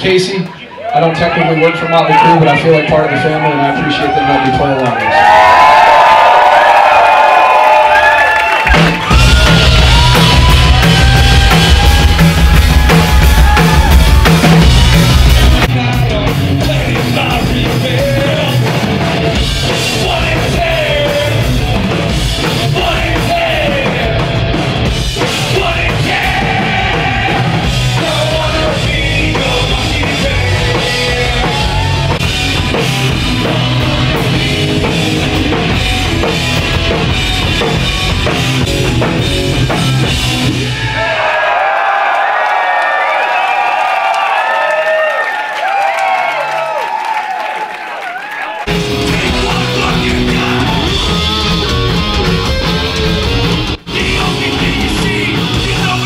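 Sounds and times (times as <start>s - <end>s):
pounding drum kit: 2.1s - 41.7s, 48.6s - 56.0s
hard rock band playing live: 8.6s - 41.2s, 48.6s - 56.0s
person singing: 25.2s - 32.1s, 48.7s - 51.8s, 53.9s - 56.0s.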